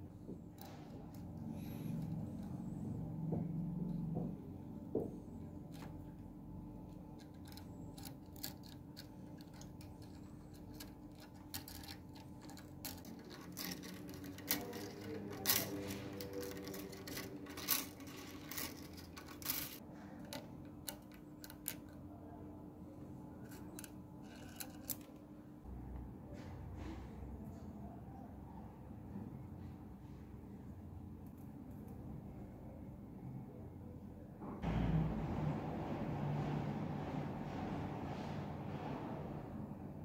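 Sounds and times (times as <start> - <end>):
metal spring clicking and scraping: 7.0 - 21.9, 23.4 - 25.1.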